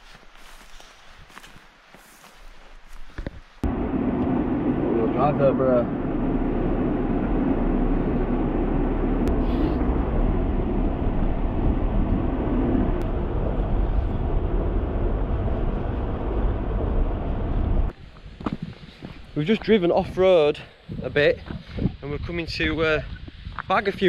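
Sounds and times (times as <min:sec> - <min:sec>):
car engine and road rumble: 0:03.6 - 0:18.6.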